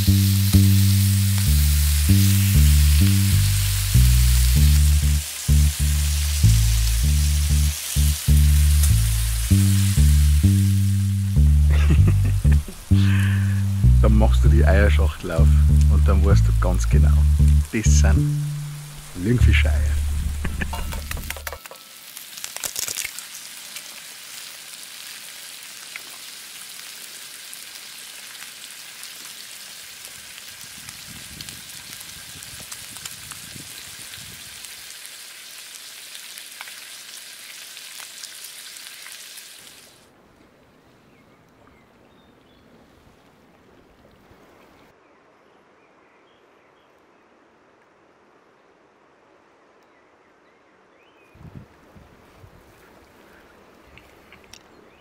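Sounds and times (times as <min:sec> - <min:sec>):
food sizzling in frying pan: 0:00.0 - 0:12.4, 0:20.0 - 0:40.0
faint outdoor background: 0:00.0 - 0:30.6, 0:34.6 - 0:55.0.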